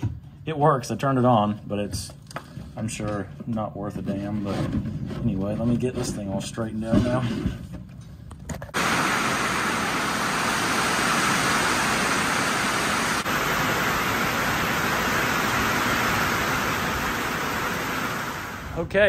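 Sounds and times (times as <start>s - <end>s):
heavy rain pouring: 8.8s - 18.9s.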